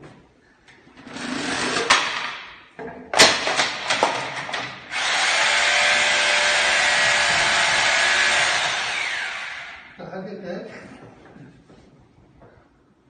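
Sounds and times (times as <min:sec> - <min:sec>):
electric motor whirring: 0:04.9 - 0:10.0.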